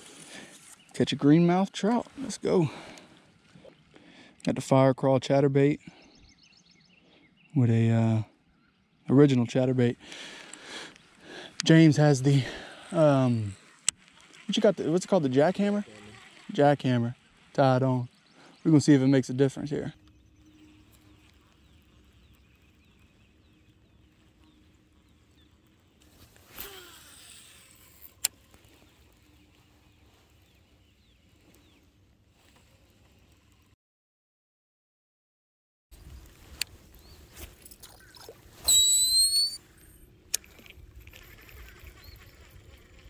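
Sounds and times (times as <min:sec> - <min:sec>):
faint birds chirping: 0:00.0 - 0:33.8, 0:35.9 - 0:43.0
fishing reel spool whirring: 0:11.6 - 0:17.5, 0:18.7 - 0:31.8, 0:36.9 - 0:43.0
reel click: 0:26.0 - 0:29.2, 0:36.2 - 0:36.8.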